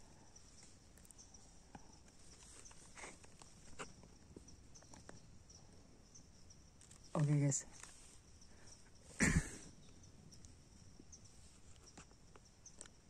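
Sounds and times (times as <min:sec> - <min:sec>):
rustles in dry leaves: 0:06.8 - 0:08.3.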